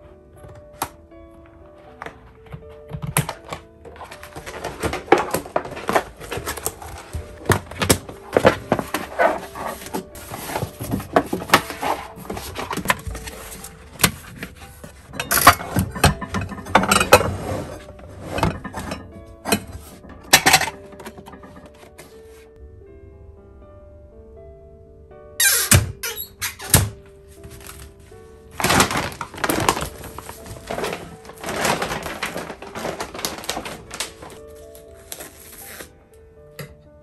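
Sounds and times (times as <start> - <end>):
soft background music: 0.0 - 37.0
plastic sheet rustling and flapping: 3.4 - 15.1, 27.4 - 34.6.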